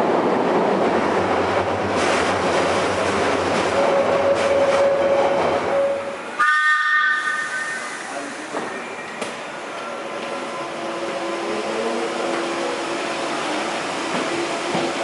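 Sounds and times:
train rumbling on rails: 0.0 - 15.0
train horn: 4.2 - 8.1.

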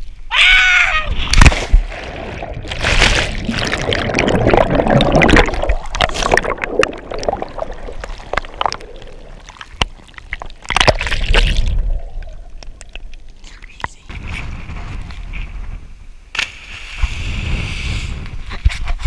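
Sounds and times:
underwater churning water and bubbles: 1.1 - 13.4.

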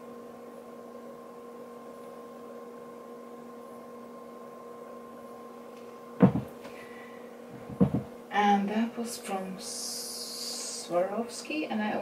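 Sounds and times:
electrical hum: 0.0 - 12.0
sharp knock: 6.2 - 6.5, 7.7 - 8.1.

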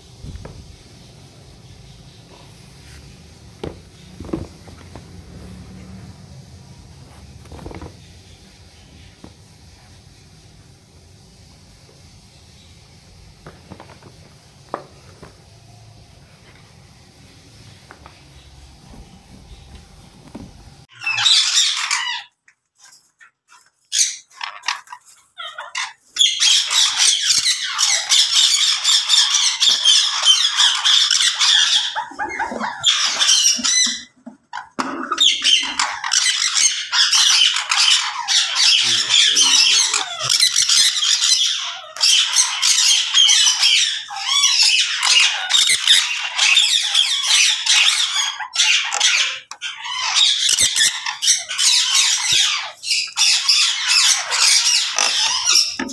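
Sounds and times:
parrots squawking and chattering: 19.4 - 55.9.

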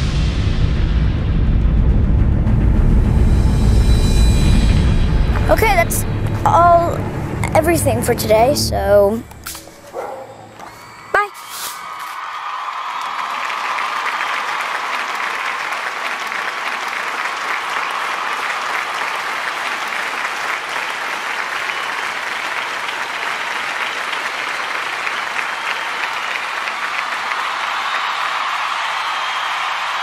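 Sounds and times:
crowd clapping: 5.4 - 6.4, 10.6 - 30.0.

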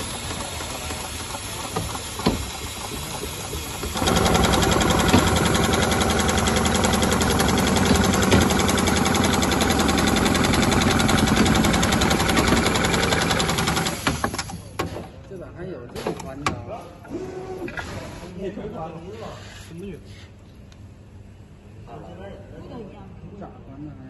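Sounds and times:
industrial sewing machine stitching: 0.0 - 14.6.

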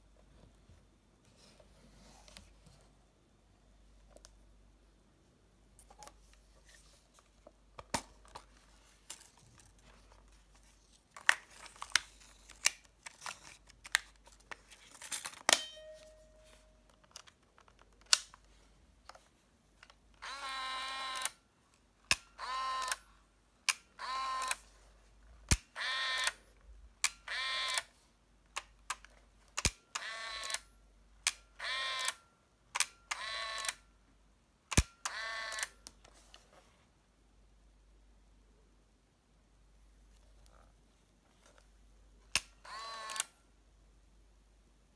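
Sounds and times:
camera motor whirs: 20.2 - 21.3, 22.4 - 23.0, 24.0 - 24.6, 27.3 - 27.8, 35.1 - 35.7, 42.6 - 43.3.

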